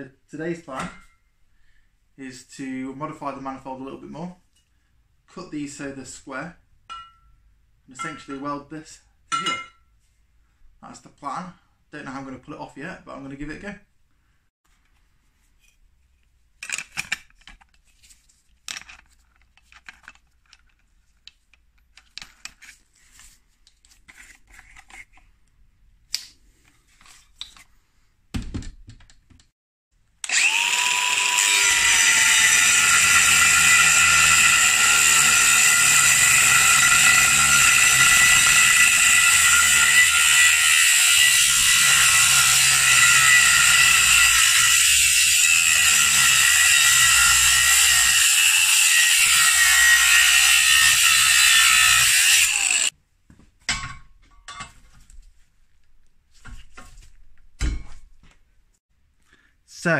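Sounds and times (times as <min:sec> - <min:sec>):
angle grinder cutting metal: 0:30.2 - 0:52.9.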